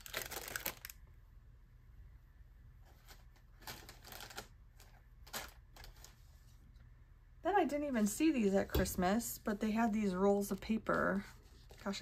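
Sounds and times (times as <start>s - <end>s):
paper and plastic packaging rustling: 0.0s - 1.0s, 2.8s - 6.6s, 10.5s - 12.0s.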